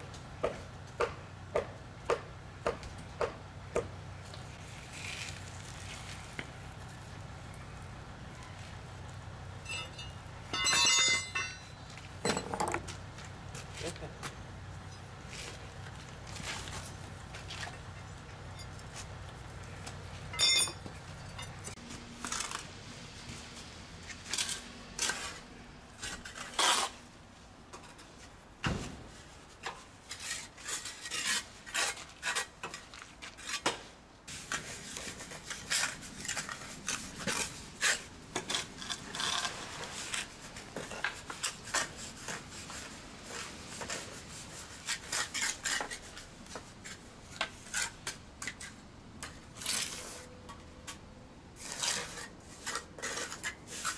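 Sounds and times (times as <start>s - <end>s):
steel bar striking stone: 9.7s - 12.6s, 20.4s - 20.8s
trowel scraping mortar: 24.3s - 27.0s, 29.6s - 50.3s, 51.6s - 53.9s.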